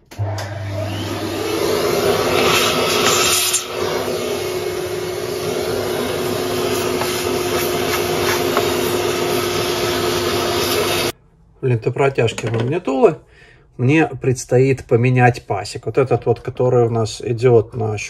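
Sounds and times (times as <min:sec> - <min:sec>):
vacuum cleaner running: 0:00.0 - 0:11.2
bristle brush scrubbing: 0:04.9 - 0:11.1.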